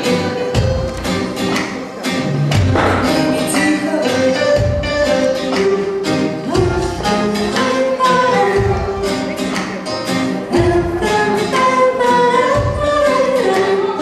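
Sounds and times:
live pop band playing: 0.0 - 14.0
woman singing: 3.0 - 4.8, 6.4 - 9.0, 10.4 - 14.0.

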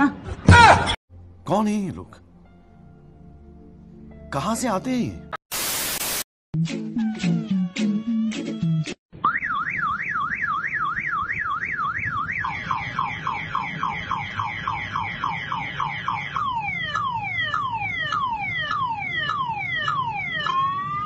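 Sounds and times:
motorcycle alarm siren tones: 9.2 - 21.0.

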